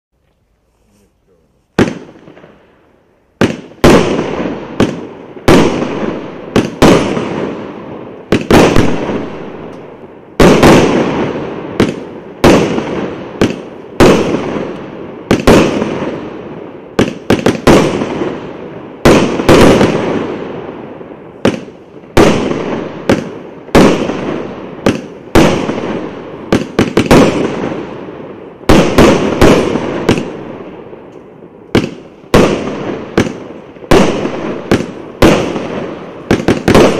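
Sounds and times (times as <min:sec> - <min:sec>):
firework crackle: 0:00.2 - 0:36.9
firework bangs: 0:01.7 - 0:02.8, 0:03.4 - 0:36.9.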